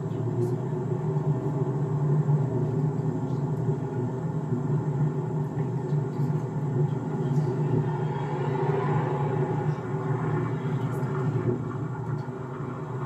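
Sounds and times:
car driving road and engine noise: 0:05.1 - 0:13.0.

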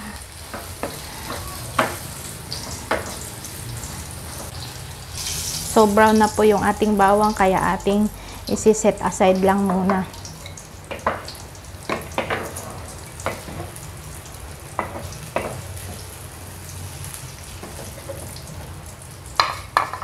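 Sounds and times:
hot oil sizzling in a frying pan: 0:00.0 - 0:20.0
utensil tapping and scraping pan: 0:00.5 - 0:03.3, 0:10.9 - 0:13.8.

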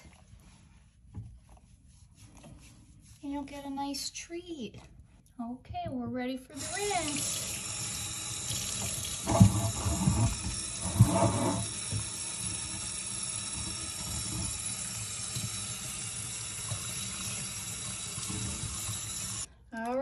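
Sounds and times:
water spraying into sink: 0:06.5 - 0:19.5.

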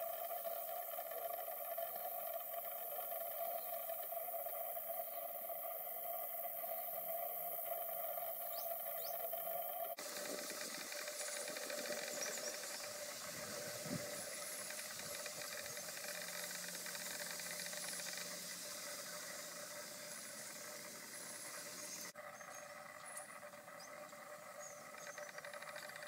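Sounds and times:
steady hiss: 0:00.0 - 0:26.0
faint high bird calls: 0:08.4 - 0:26.0.

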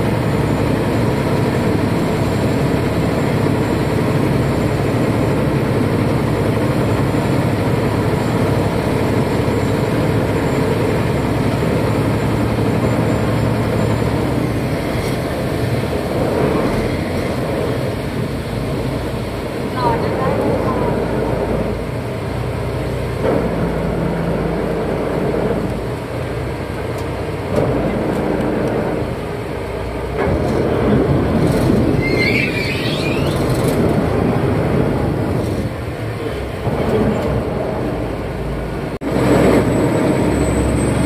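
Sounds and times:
boat diesel engine droning: 0:00.0 - 0:41.0
rushing water: 0:00.0 - 0:41.0
wind: 0:00.0 - 0:41.0
wavering high squeal: 0:32.0 - 0:33.7.

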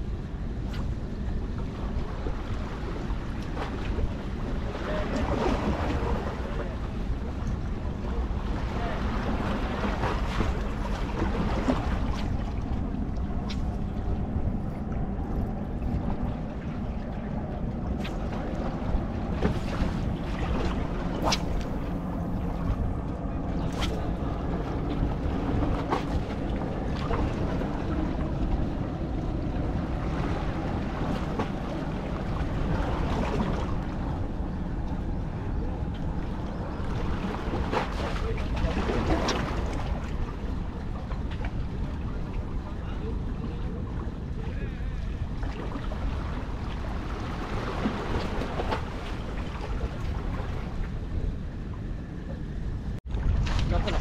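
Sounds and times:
waves lapping against rocks: 0:36.9 - 0:50.9.

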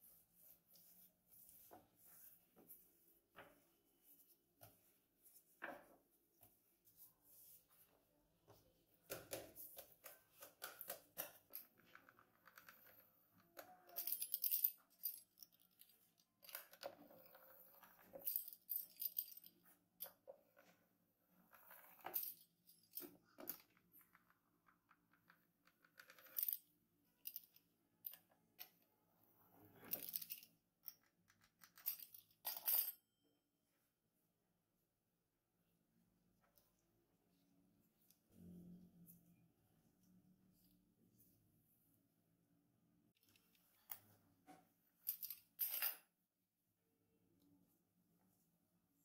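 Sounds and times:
hands tapping and scraping dough: 0:09.0 - 0:12.7.

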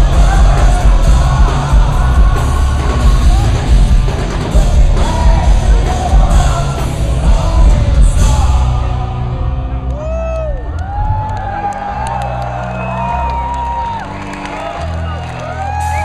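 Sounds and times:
man singing and yelling: 0:00.0 - 0:09.8
rock band playing live: 0:00.0 - 0:16.0.

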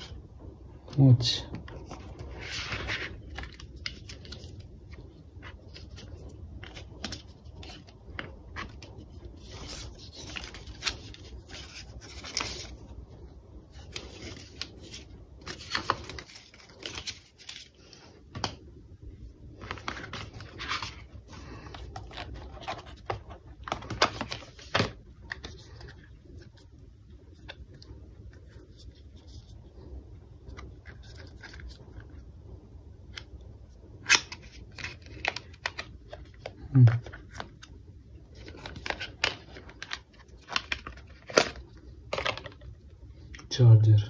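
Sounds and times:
paper and cardboard rustling: 0:01.0 - 0:13.0, 0:13.6 - 0:18.6, 0:19.6 - 0:29.7.

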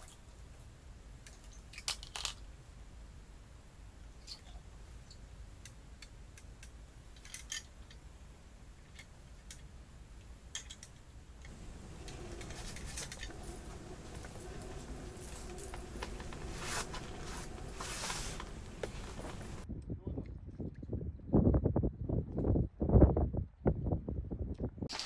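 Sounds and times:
soft rustling: 0:11.5 - 0:19.6.

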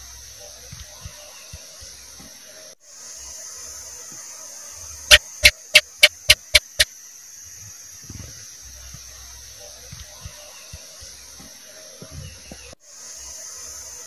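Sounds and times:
steady high hiss: 0:00.0 - 0:14.0
gecko chirping: 0:05.1 - 0:06.9.

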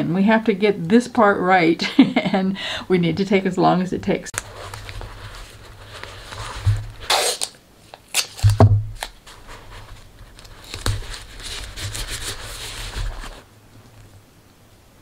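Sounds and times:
tape and paper crinkling: 0:04.3 - 0:13.4.

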